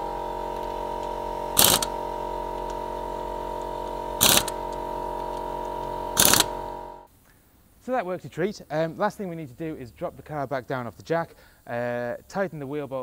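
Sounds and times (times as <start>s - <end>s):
air impact gun bursts: 0.0s - 7.1s
steady mechanical hum: 0.0s - 10.0s.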